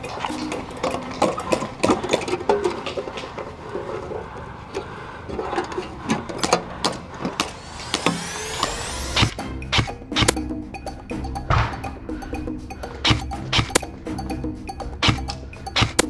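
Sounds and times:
rising musical sweep: 7.2s - 15.6s.

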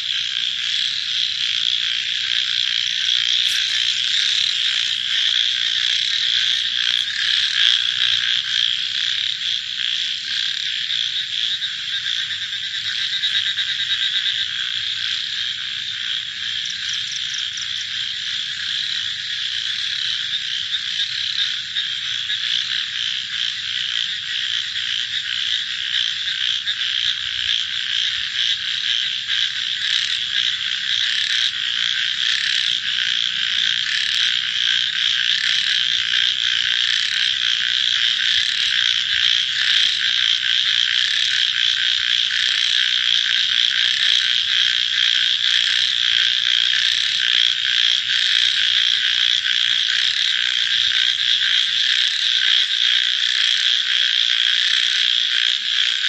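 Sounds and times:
chorus of frogs calling: 0.0s - 56.0s
sharper frog calls: 0.0s - 56.0s.

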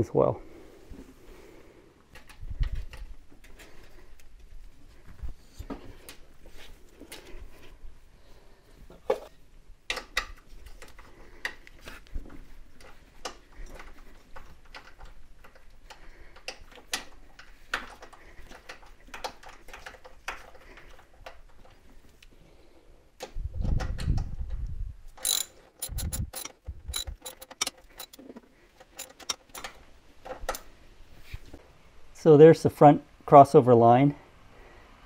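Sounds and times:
sharp metallic clicks: 25.2s - 28.2s, 28.8s - 29.8s
metal clicks and clinks: 25.2s - 30.7s.

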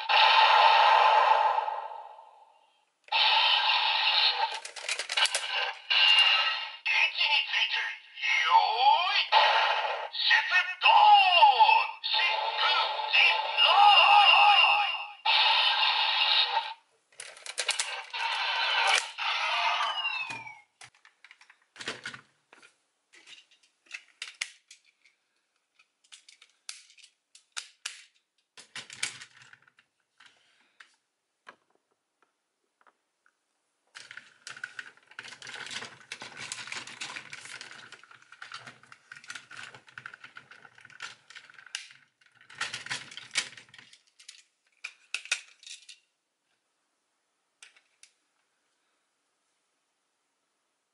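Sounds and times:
plastic toy parts clicking: 4.4s - 6.5s, 17.2s - 22.2s, 23.2s - 30.3s, 33.9s - 46.1s, 47.6s - 48.2s.

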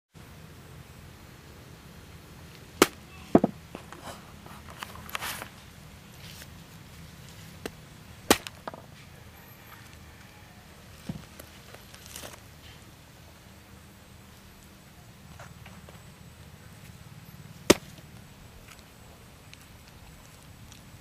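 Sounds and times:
sharp knocks: 2.8s - 3.6s.

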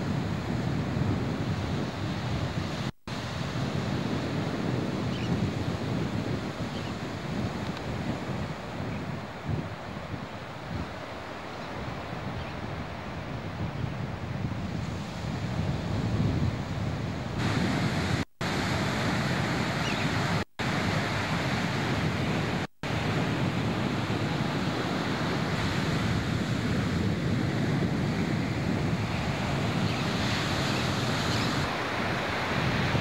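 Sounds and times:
surf breaking on a beach: 0.0s - 33.0s
wind buffeting microphone: 0.0s - 33.0s.

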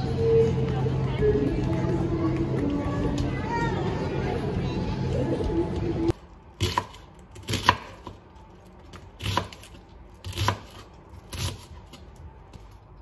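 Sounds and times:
knife chopping onion on board: 6.6s - 8.2s, 8.9s - 11.7s.

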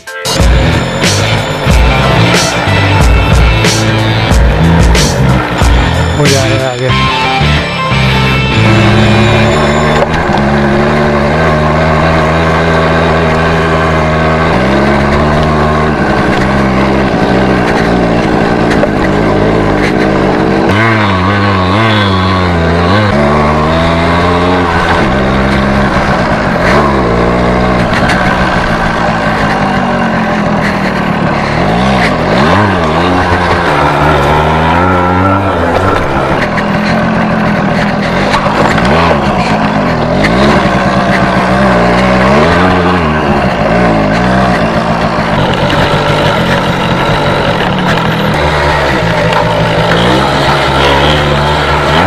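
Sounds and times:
two-stroke motorcycle engine revving: 0.0s - 52.0s.

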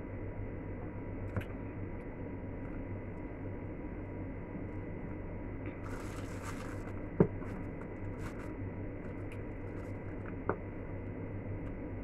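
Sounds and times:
steady low hum: 0.0s - 12.0s
paper wrapper rustling: 5.8s - 10.2s.

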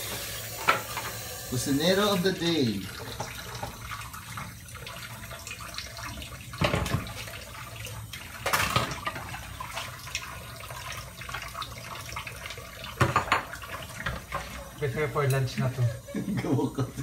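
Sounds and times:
plates washed by hand: 0.0s - 17.0s
tap water running into sink: 0.0s - 17.0s.

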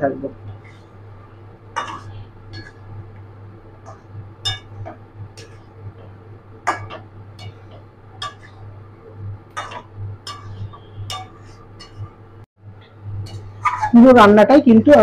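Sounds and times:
low hum: 0.0s - 14.9s
metal spatula scraping pan: 9.5s - 12.1s, 13.2s - 14.0s.

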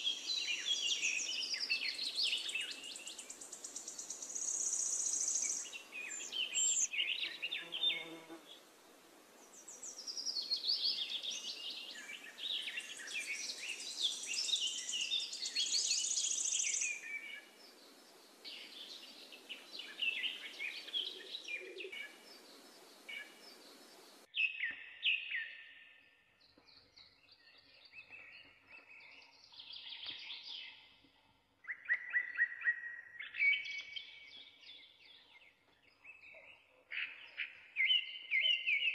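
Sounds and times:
birds chirping and trilling: 0.0s - 8.7s, 9.4s - 38.9s.

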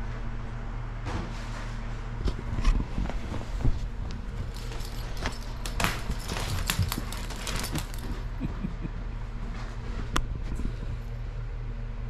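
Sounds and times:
steady low hum: 0.0s - 12.0s
crinkle tunnel rustling: 1.6s - 8.5s.

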